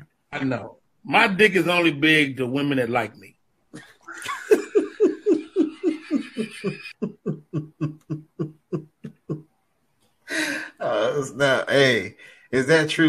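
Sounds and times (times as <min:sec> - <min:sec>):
person laughing heartily: 0:03.8 - 0:09.5.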